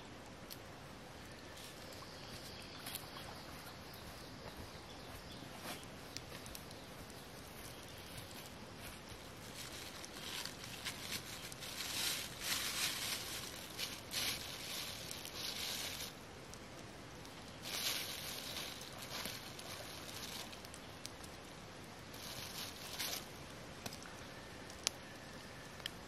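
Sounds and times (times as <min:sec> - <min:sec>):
plastic bag crinkling: 0:09.2 - 0:16.2, 0:17.6 - 0:20.8, 0:22.1 - 0:23.3.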